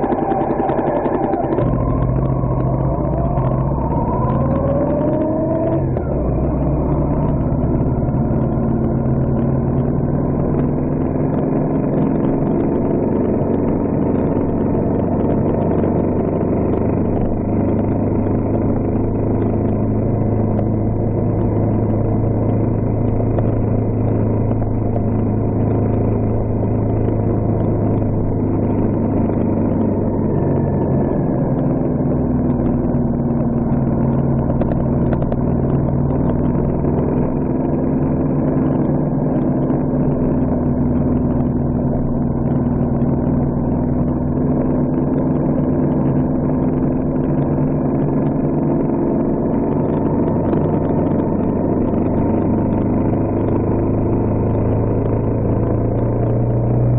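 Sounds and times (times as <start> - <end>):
tyres on gravel road: 0.0 - 16.2
vehicle engine running: 0.0 - 56.9.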